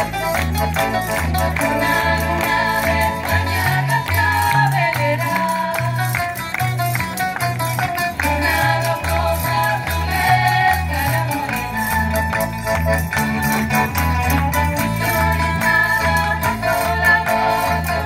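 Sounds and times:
strummed and plucked guitars: 0.0 - 18.0
women singing together: 1.6 - 6.2, 8.2 - 11.9, 15.0 - 18.0.

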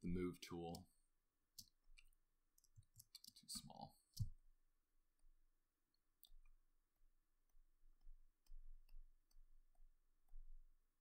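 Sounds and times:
computer mouse clicks: 1.6 - 3.5.

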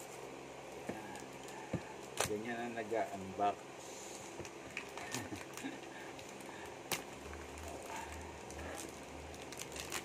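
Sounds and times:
low pulsing hum: 0.0 - 10.0
shrink-wrap crinkling: 4.1 - 10.0.

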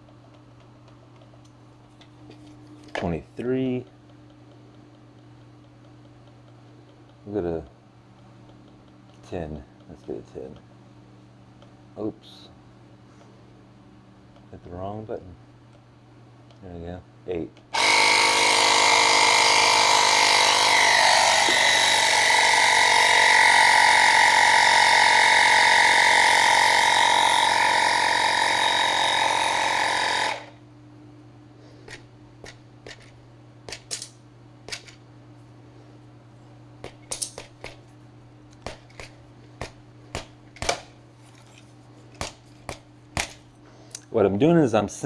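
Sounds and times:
electric tyre inflator running: 17.7 - 30.6.

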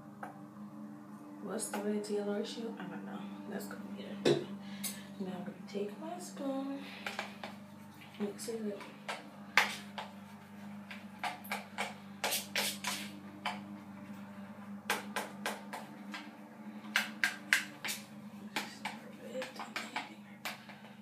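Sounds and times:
steady low hum: 0.0 - 21.0
spoon scraping mixing bowl: 6.8 - 13.7.

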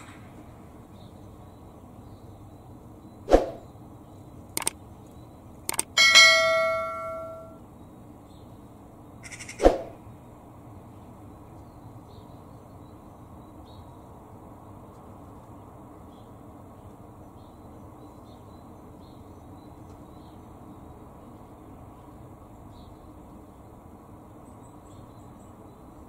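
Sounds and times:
mouse clicks: 4.6 - 4.8, 5.7 - 5.9
bright bell ding: 6.0 - 7.6.

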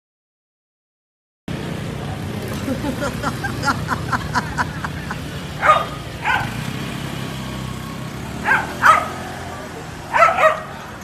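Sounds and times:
motorbike traffic drone: 1.5 - 11.0
dog barking: 5.6 - 6.6, 8.4 - 9.4, 10.1 - 10.8.

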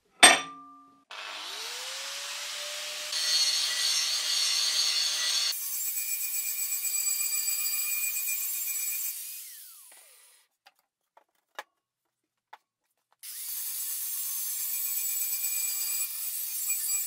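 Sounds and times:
angle grinder grinding steel: 1.2 - 10.4.

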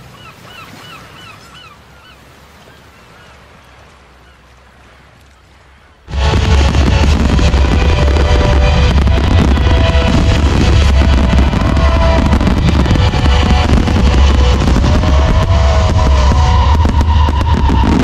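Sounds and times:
fireworks popping and crackling: 6.1 - 18.0.

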